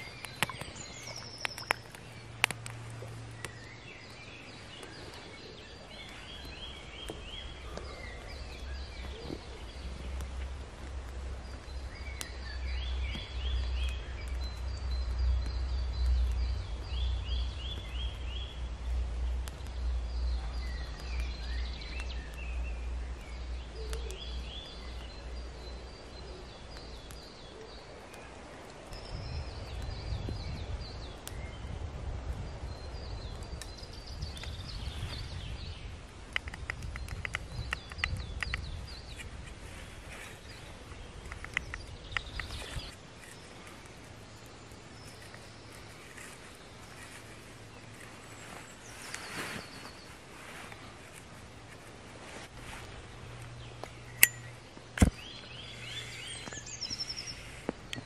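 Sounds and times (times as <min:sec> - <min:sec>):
songbirds singing: 0:00.0 - 0:58.0
sharp clicks: 0:36.3 - 0:39.3, 0:41.2 - 0:44.0.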